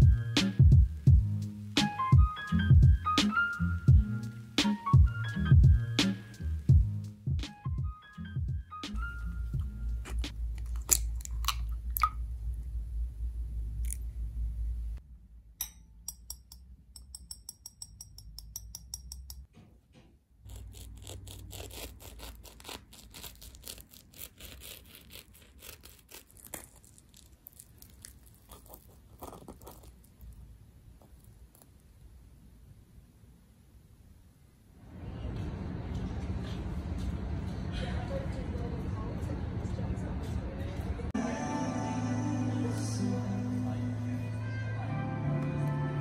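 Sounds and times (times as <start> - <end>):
flaky pastry crackling and crunching: 10.0 - 12.0, 20.4 - 31.9
utensils clicking against glass bowl: 15.6 - 19.5
whisk ticking in bowl: 16.1 - 19.5.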